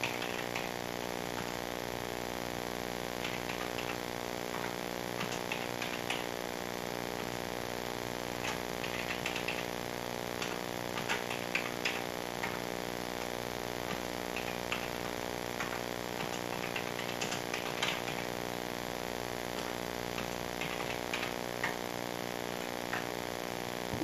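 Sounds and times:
keyboard keys clicking: 0.0 - 0.7, 3.2 - 6.3, 8.4 - 9.7, 10.4 - 12.6, 13.9 - 18.3, 19.6 - 21.8
steady electrical buzz: 0.0 - 24.0.

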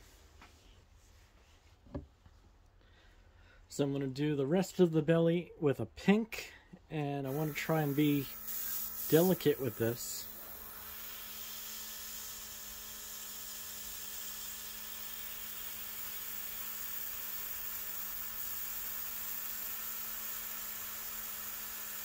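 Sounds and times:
airbrush compressor whirring: 7.2 - 22.0
air hissing from nozzle: 7.3 - 22.0.

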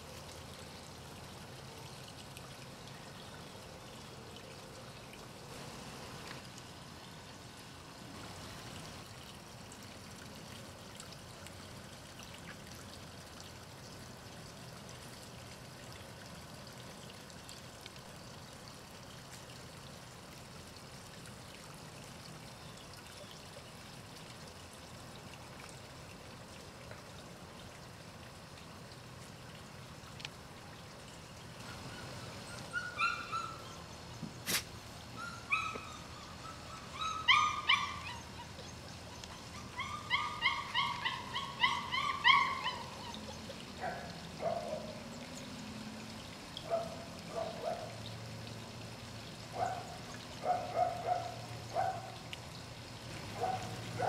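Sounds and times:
faint trickle of water: 0.0 - 54.0
puppies whining and yelping: 32.4 - 33.8, 35.2 - 43.5.

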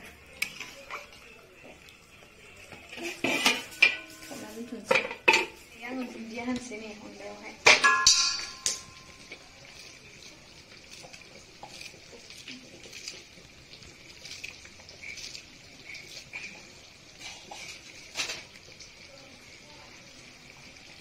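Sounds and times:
curry simmering: 0.0 - 21.0
leaves being torn: 9.2 - 16.6.

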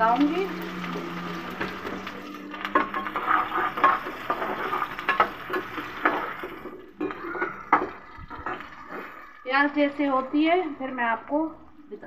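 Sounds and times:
onions sizzling in hot oil: 0.0 - 12.0
spoon scraping and knocking pot: 2.6 - 8.7.

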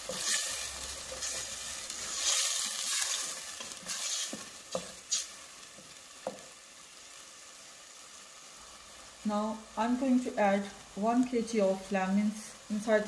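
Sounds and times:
wooden spoon scraping pot: 0.0 - 6.4
food sizzling in oil: 0.0 - 13.0.

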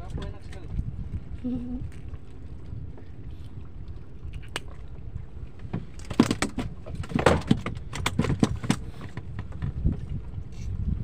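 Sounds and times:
wind rumble on microphone: 0.0 - 11.0
sharp knocks and clicks: 5.7 - 10.0.

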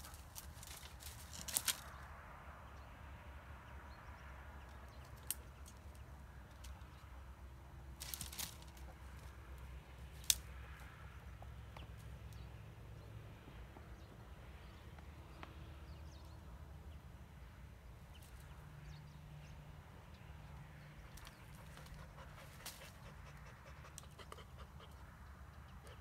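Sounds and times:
twigs and wood cracking: 0.0 - 2.2, 4.7 - 7.0, 7.9 - 10.9, 21.0 - 24.2.

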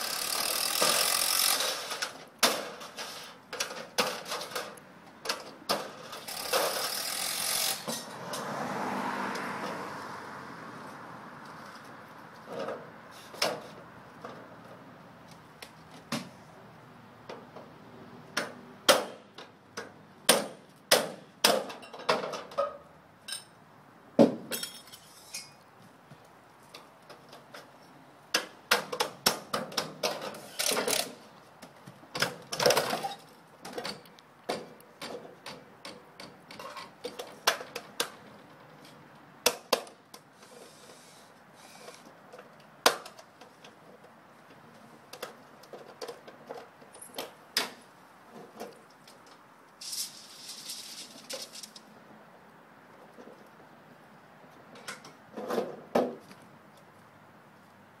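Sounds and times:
metal clanks and rattles: 0.7 - 7.0.

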